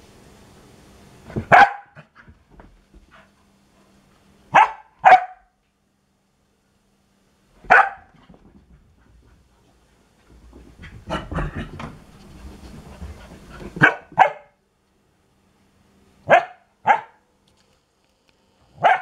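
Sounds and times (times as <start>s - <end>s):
dog barking: 1.5s - 2.0s, 4.5s - 5.5s, 7.7s - 8.1s, 13.8s - 14.6s, 16.3s - 17.2s, 18.8s - 19.0s.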